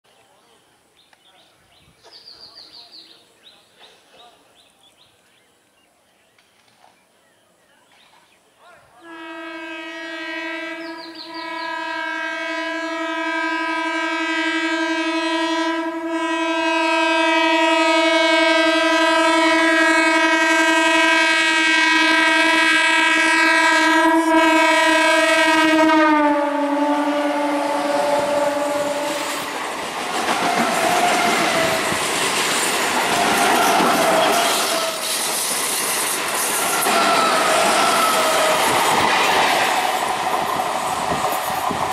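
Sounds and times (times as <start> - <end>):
train horn blast: 9.0 - 29.5, 30.3 - 31.9, 33.1 - 35.1, 36.5 - 38.8
train wheels clattering: 29.1 - 41.9
wheels squealing: 30.3 - 40.1.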